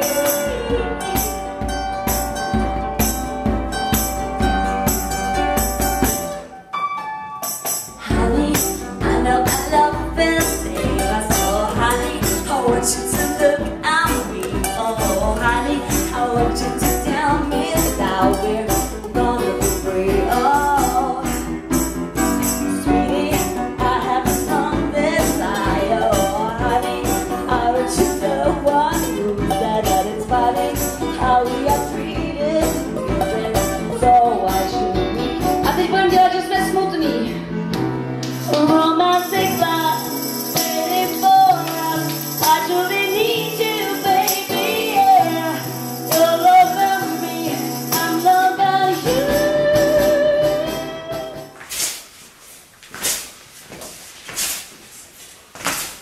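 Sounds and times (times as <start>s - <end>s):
woman singing into microphone: 0.0s - 1.5s, 8.0s - 21.8s, 22.4s - 37.5s, 38.5s - 51.6s
steady percussion beat: 0.0s - 6.4s
guitar: 0.0s - 51.8s.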